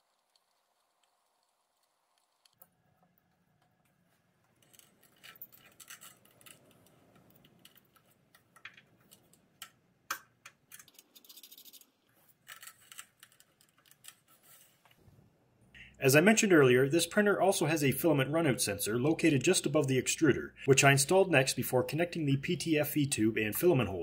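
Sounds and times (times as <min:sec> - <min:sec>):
rustling and scratching of wires: 0:00.0 - 0:09.8, 0:10.6 - 0:15.2.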